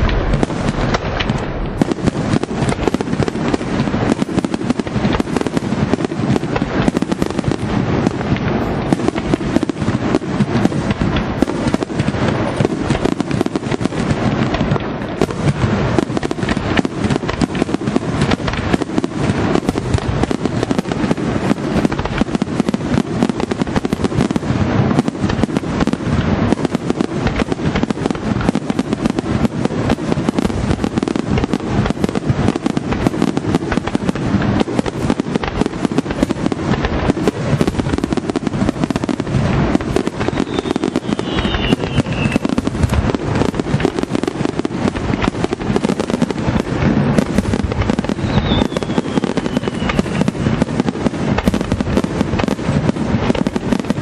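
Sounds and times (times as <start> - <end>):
firework shells bursting: 0.0 - 54.0
falling firework whistle: 39.7 - 43.2, 47.1 - 50.7.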